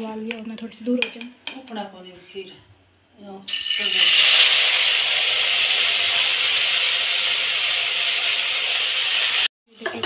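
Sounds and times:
rice steaming and sizzling: 3.5 - 10.0.

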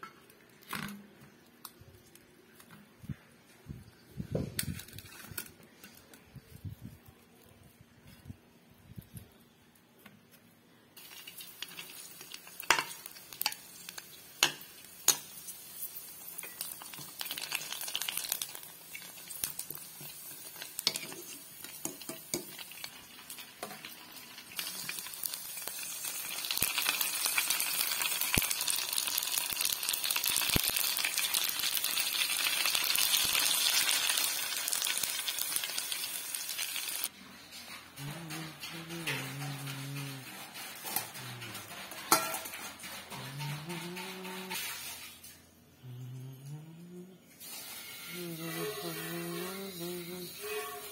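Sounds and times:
dough frying in hot oil: 11.0 - 37.8.

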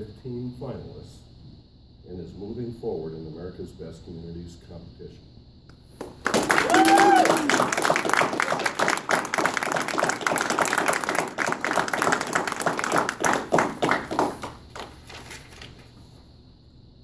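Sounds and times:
group applauding: 6.0 - 15.7.

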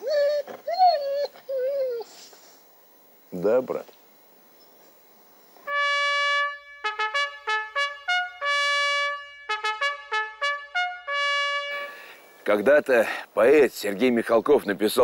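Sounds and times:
trumpet signal call: 5.7 - 12.4.

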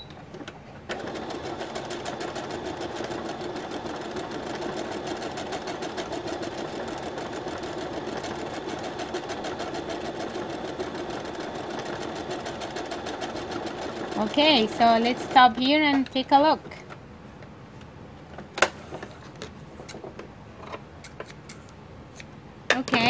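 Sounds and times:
sewing machine stitching: 0.9 - 15.7.

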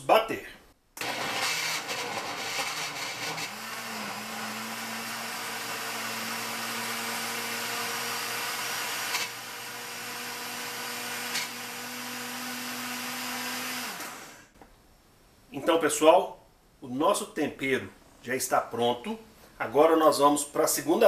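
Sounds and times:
electric blender running: 1.0 - 14.5.

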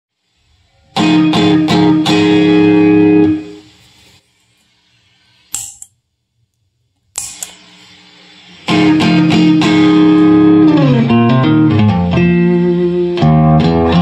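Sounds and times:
fuzz electric guitar strums: 0.8 - 3.6, 8.6 - 14.0.

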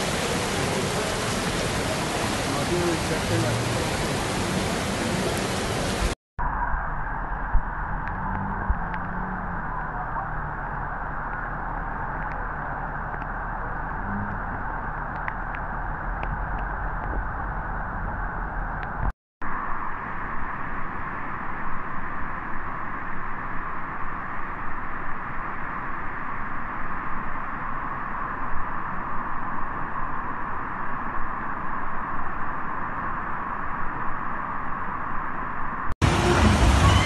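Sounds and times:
floodwater rushing: 0.0 - 6.2, 36.0 - 37.0.

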